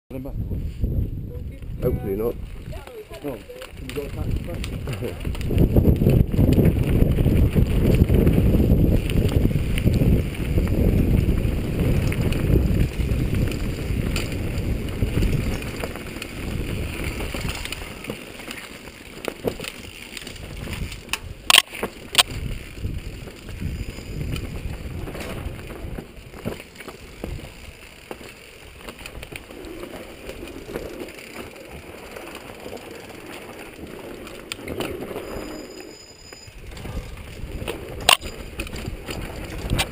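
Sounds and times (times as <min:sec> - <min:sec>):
wind rumble on microphone: 0:00.1 - 0:18.2, 0:19.5 - 0:27.8, 0:36.5 - 0:39.9
bike tyres rolling and rattling: 0:00.5 - 0:39.9.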